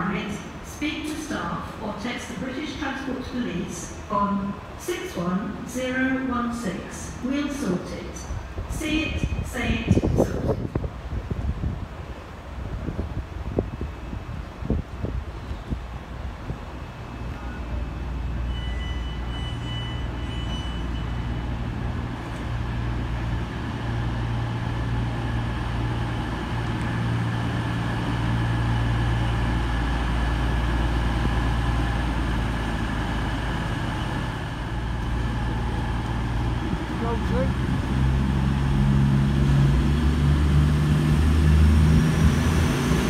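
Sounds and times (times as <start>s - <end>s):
train diesel engines droning: 0.0s - 43.0s
high squeal: 18.4s - 21.4s.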